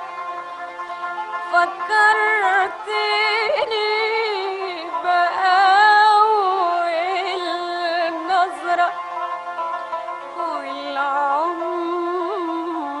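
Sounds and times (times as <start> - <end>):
woman singing with vibrato: 1.4 - 9.0, 10.4 - 13.0.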